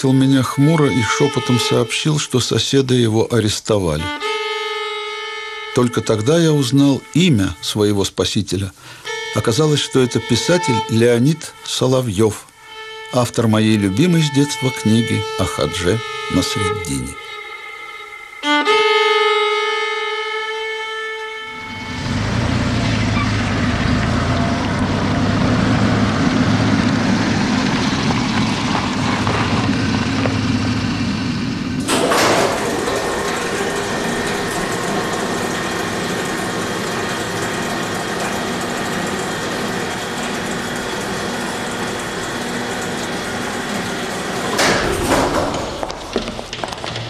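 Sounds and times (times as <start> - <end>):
mechanical drone: 21.4 - 44.9.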